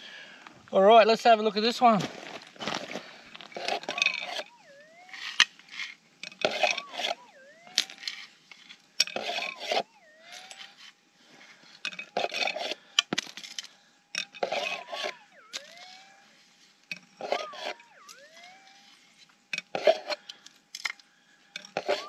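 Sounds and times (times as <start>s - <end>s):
metal detector tone: 3.5s - 10.9s, 11.7s - 13.0s, 14.1s - 20.4s, 21.5s - 22.0s.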